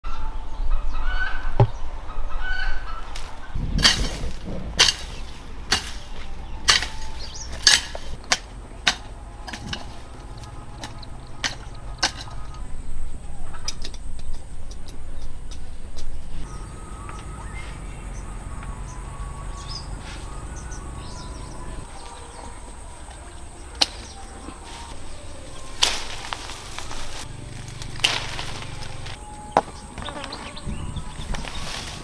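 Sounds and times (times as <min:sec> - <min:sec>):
low outdoor rumble: 0:01.5 - 0:32.0
leafy swishes: 0:03.1 - 0:12.4, 0:19.2 - 0:29.3, 0:31.1 - 0:32.0
branches snapping: 0:03.1 - 0:12.6, 0:23.1 - 0:29.6.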